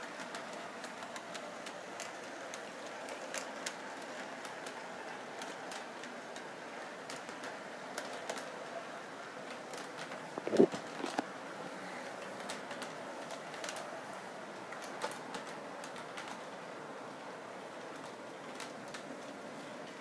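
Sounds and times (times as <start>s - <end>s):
light irregular clicks: 0.0s - 4.8s, 5.4s - 8.6s
model train whirring on track: 0.0s - 10.4s.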